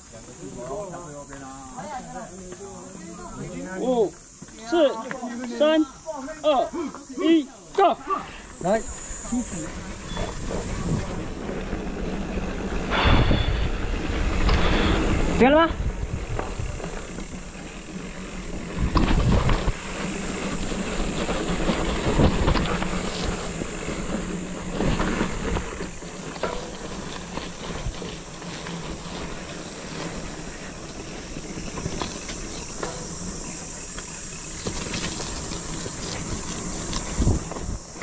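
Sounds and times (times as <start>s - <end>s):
rushing hiss of riding: 0.0s - 38.0s
bike rattling over bumps: 0.1s - 38.0s.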